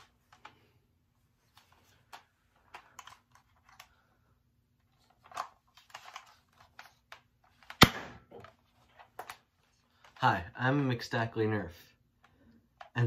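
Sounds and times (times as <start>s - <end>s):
sharp loud snap: 7.8s - 8.3s.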